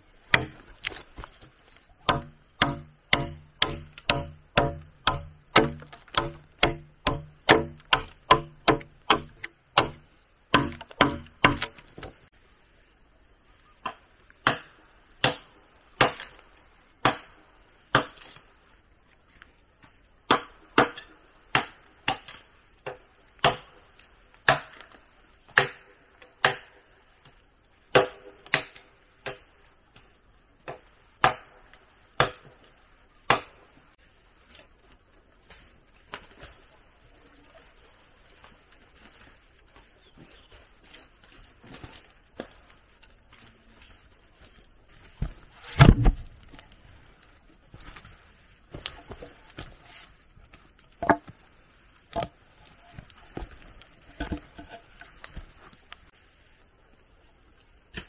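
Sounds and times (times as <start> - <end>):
blade chopping wood: 0.3 - 1.4, 2.0 - 12.2, 14.4 - 16.3, 17.9 - 18.4, 24.5 - 24.9, 25.5 - 26.8, 27.9 - 29.4, 32.2 - 32.6, 45.2 - 46.3.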